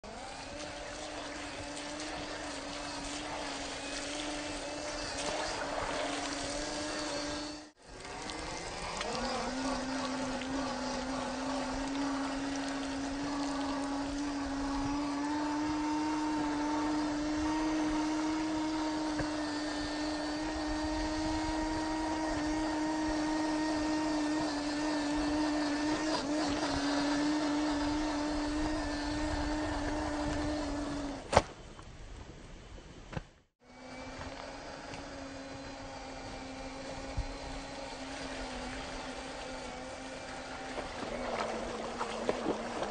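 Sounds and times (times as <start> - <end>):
splashing through mud puddle: 0.0 - 18.5, 37.8 - 42.9
small electric motor whining: 0.0 - 31.3, 33.6 - 42.9.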